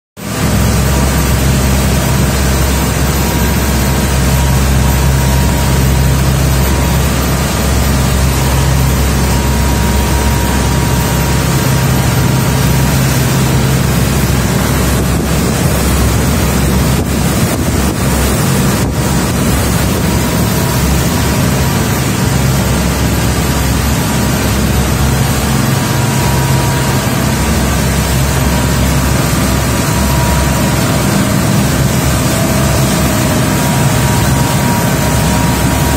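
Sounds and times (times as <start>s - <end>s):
boat engines droning: 0.2s - 35.9s
wind and water rushing: 0.2s - 35.9s.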